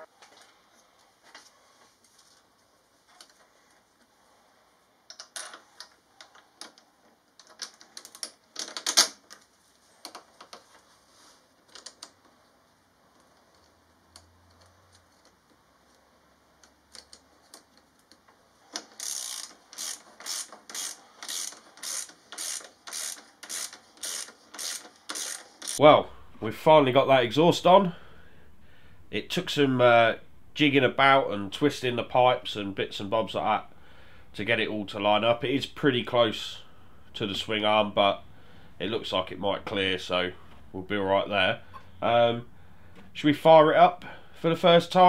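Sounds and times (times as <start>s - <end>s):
ratchet spanner clicking: 19.0s - 25.8s.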